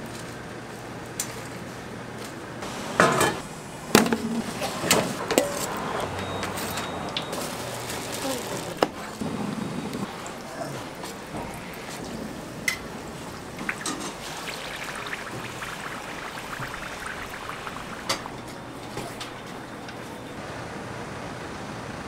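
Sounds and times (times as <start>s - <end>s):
steady background noise: 0.0s - 22.0s
oil sizzling on a griddle: 7.2s - 8.9s, 10.1s - 18.8s.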